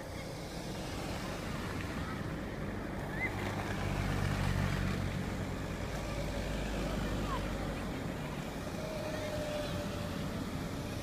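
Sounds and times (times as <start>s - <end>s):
car approaching: 0.0s - 11.0s
car engine hum in cabin: 0.0s - 11.0s.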